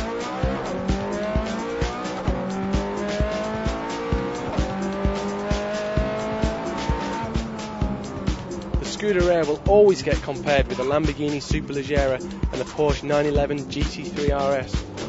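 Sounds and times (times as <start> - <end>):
sports car engine running hard: 0.0 - 10.9
backing music with steady beat: 0.0 - 15.0.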